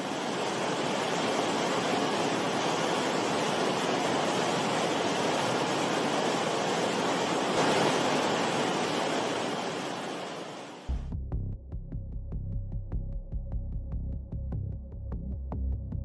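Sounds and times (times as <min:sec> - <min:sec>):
flowing water rushing: 0:00.0 - 0:10.9.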